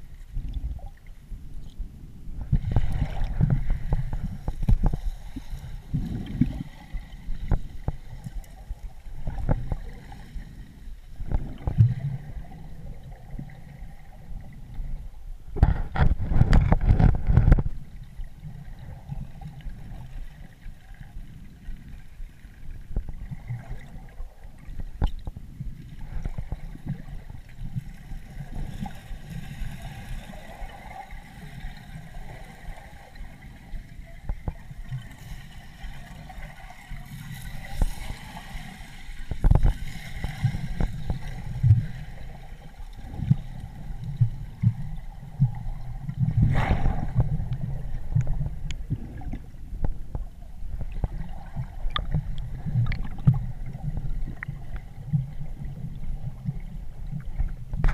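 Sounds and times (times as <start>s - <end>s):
underwater water sloshing: 0.0s - 57.9s.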